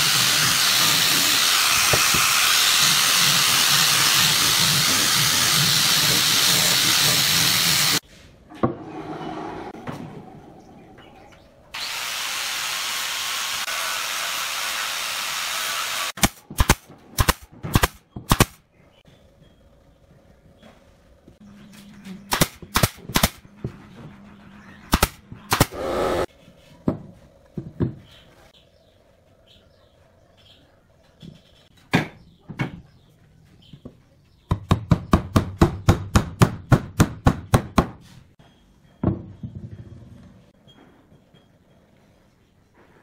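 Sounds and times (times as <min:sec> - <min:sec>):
nail gun firing: 0:16.0 - 0:18.6, 0:22.3 - 0:23.4, 0:24.9 - 0:26.2.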